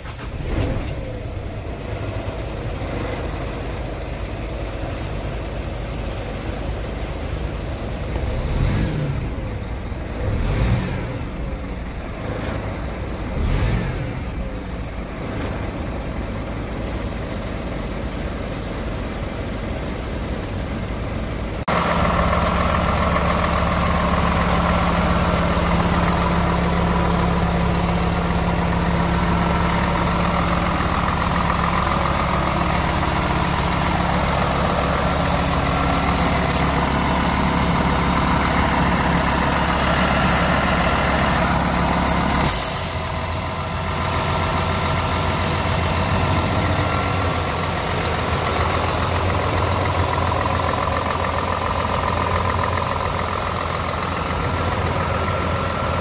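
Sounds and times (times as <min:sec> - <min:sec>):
diesel truck engine idling: 0:00.0 - 0:56.0
compressed air hiss: 0:42.4 - 0:43.1.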